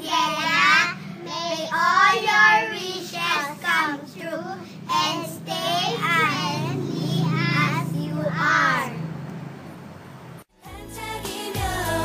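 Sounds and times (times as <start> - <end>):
girls singing together: 10.6 - 12.0.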